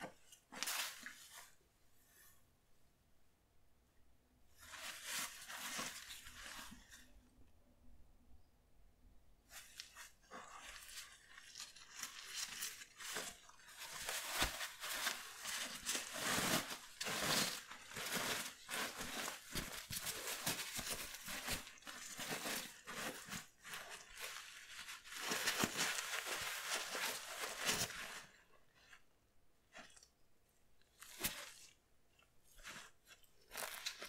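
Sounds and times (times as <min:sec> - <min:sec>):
fabric and plastic crinkling: 0:04.6 - 0:07.1, 0:09.5 - 0:29.1, 0:30.9 - 0:34.0.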